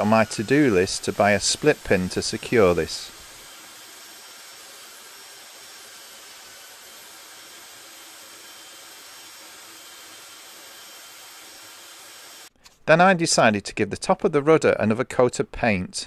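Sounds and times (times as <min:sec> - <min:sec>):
belt sander running: 0:00.0 - 0:12.5.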